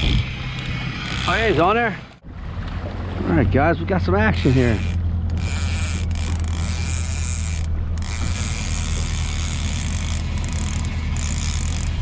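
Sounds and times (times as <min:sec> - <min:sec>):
fishing reel ratcheting: 0:00.0 - 0:01.7, 0:04.3 - 0:12.0
outboard motor running: 0:00.0 - 0:12.0.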